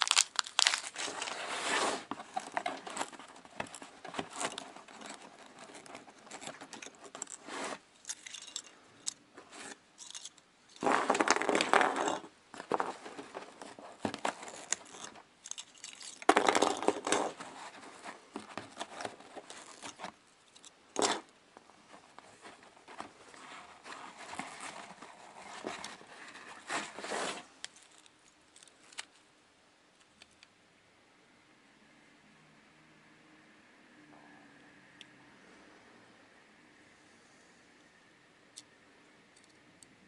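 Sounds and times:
plastic bag crinkling: 0.0 - 9.2, 10.0 - 21.2.

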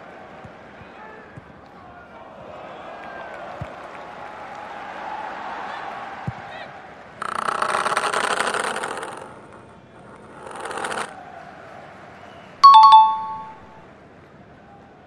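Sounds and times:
two-note chime: 12.6 - 13.7.

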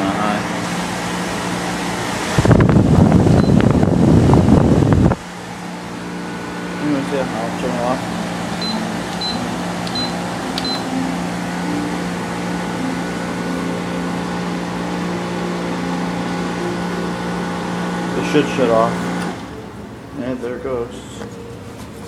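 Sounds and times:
dehumidifier hum and rattle: 0.0 - 22.0
short high beeps: 8.6 - 11.0.

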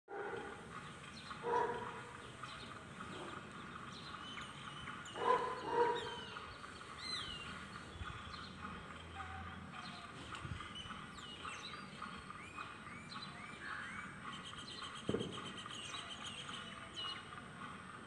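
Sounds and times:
dog barking: 0.1 - 0.6, 1.4 - 2.1, 5.2 - 6.2
small birds chirping faintly: 0.1 - 17.9.

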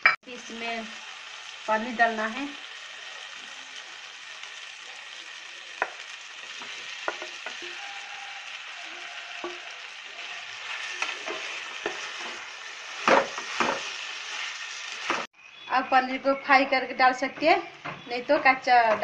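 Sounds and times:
food sizzling in a frying pan: 0.2 - 15.4
spatula knocking and scraping pan: 6.5 - 7.8, 9.3 - 9.7, 10.7 - 15.3.

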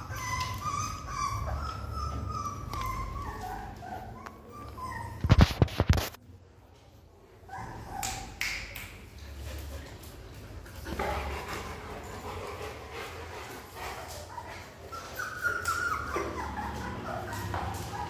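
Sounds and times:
puppies whimpering and yipping: 0.0 - 5.7, 14.0 - 18.0
puppy whining: 0.0 - 6.1, 7.4 - 8.4, 14.0 - 18.0.

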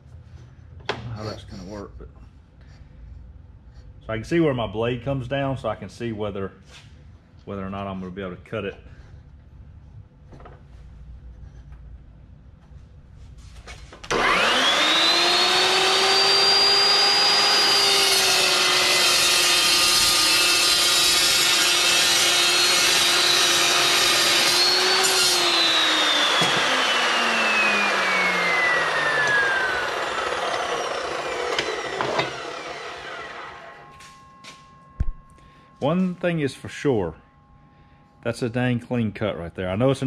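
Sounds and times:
chop saw motor whine: 14.0 - 35.8
saw cutting through steel pipe: 14.1 - 34.0.

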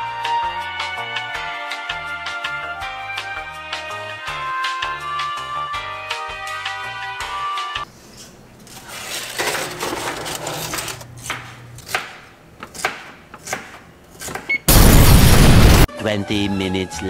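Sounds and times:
burst of static noise: 14.7 - 15.9.

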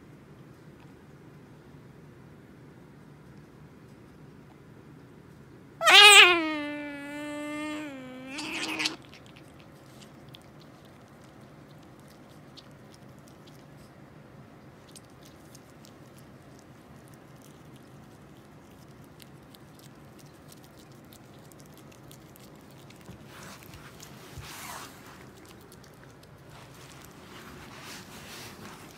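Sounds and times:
otter chewing: 7.1 - 28.9.

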